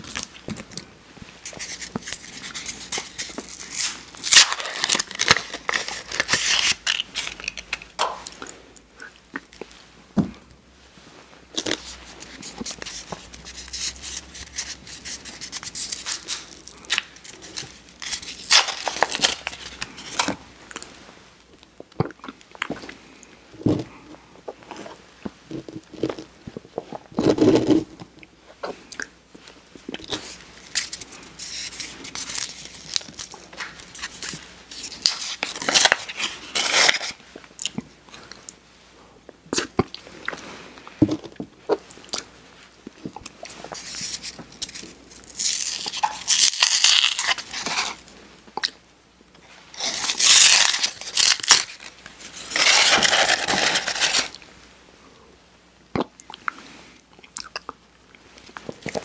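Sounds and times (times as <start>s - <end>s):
paper crinkling and tearing: 1.4s - 7.8s, 11.6s - 20.4s, 30.0s - 37.2s, 43.5s - 48.0s, 49.7s - 54.4s.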